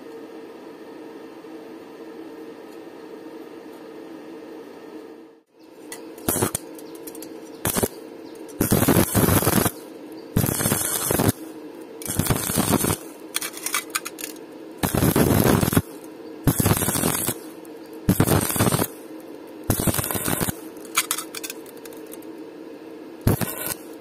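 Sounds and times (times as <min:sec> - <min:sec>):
steady low hum: 0:00.0 - 0:24.0
welding arc crackling and sizzling: 0:05.8 - 0:22.4, 0:23.2 - 0:24.0.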